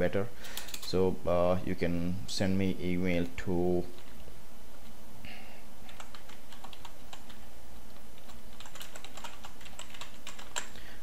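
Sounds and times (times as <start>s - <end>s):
low background hum: 0.0s - 11.0s
keyboard typing clicks: 5.9s - 7.4s, 8.2s - 10.8s.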